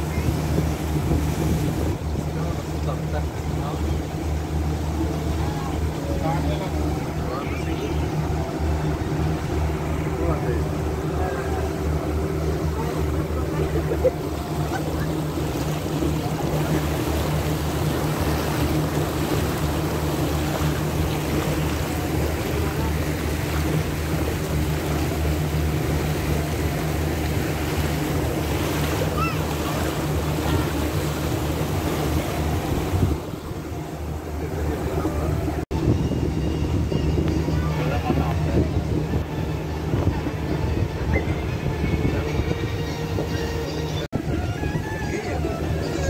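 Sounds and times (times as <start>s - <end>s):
boat engine humming: 0.0s - 46.0s
rushing water and wind: 0.0s - 46.0s.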